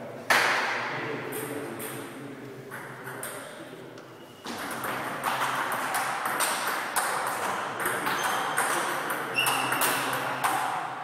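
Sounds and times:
table tennis balls clicking: 4.5 - 10.8
short high squeak: 9.4 - 9.8.

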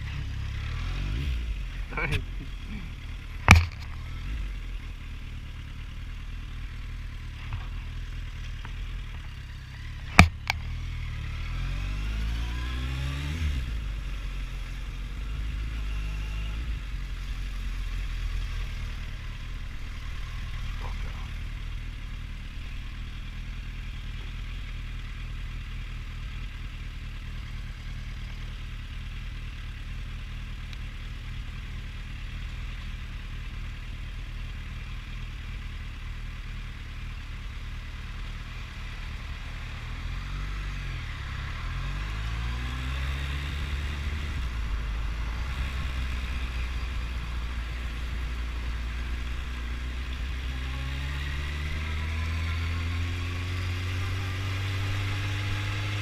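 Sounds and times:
motorcycle engine revving: 0.0 - 56.0
sharp knocks: 10.1 - 10.6.

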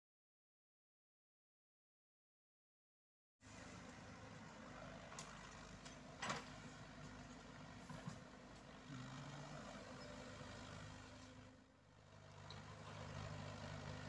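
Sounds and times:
excavator diesel engine running: 3.5 - 14.0.

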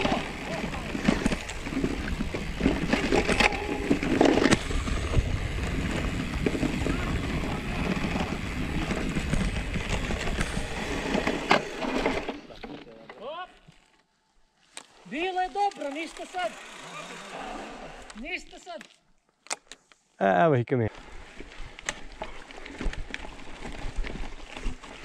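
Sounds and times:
bike tyres rumbling on grass: 0.0 - 12.2, 21.0 - 25.0
bike rattling and knocking: 0.0 - 13.1, 21.8 - 25.0.

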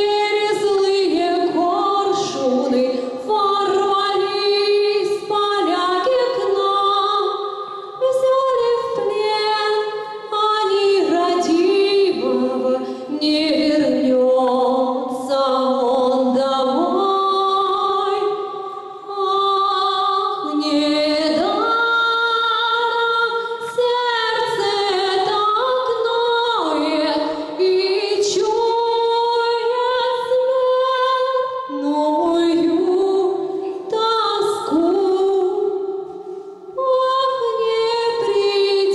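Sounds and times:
woman singing: 0.0 - 38.9.

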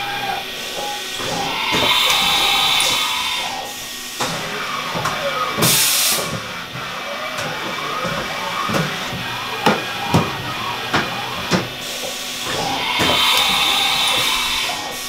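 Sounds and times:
servo drives whining: 0.0 - 15.0
loud burst of hiss: 1.6 - 4.2, 11.8 - 15.0.

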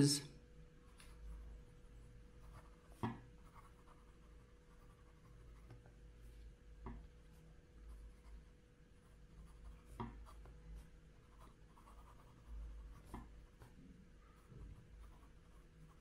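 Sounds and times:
fountain pen scratching on paper: 2.4 - 5.8, 9.0 - 13.7, 14.3 - 16.0.

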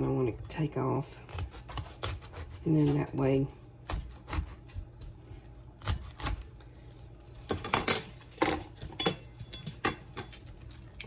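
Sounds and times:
knife cracking cauliflower: 1.3 - 2.6, 3.8 - 6.6.

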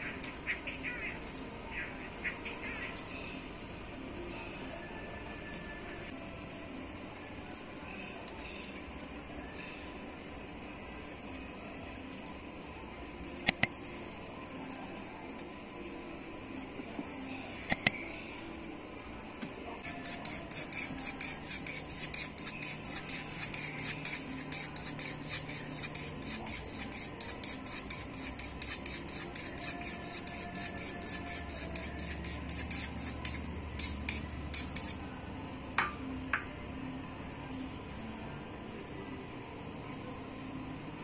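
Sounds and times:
sharp clicks: 13.4 - 13.7, 17.7 - 18.0
rasping scraping strokes: 19.8 - 35.0.

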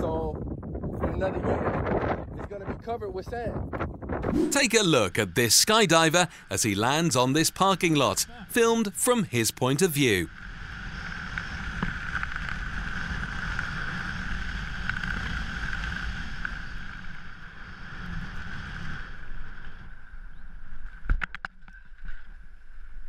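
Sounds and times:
wind rushing over microphone: 0.0 - 4.8.

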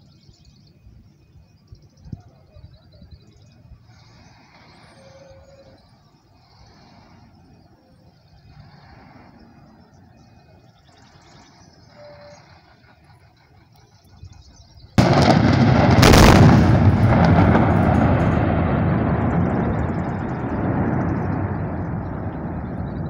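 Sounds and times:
long rumble: 15.0 - 23.0
loud explosive blast: 15.0 - 23.0.

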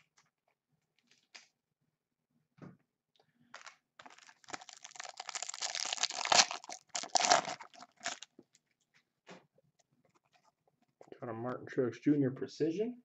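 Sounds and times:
plastic wrapper crinkling: 3.5 - 8.7.

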